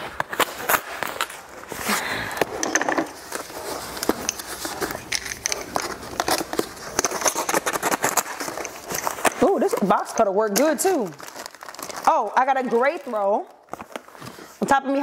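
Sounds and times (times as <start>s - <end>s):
packaging clicks and crackling: 2.3s - 14.5s
box cutter slicing package: 5.8s - 10.0s.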